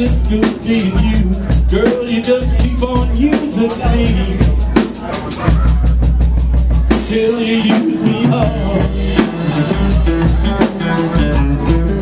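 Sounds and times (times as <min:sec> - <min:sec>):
man singing into a microphone: 0:00.0 - 0:04.8, 0:06.9 - 0:11.3
drum kit: 0:00.0 - 0:12.0
electric guitars: 0:06.9 - 0:12.0.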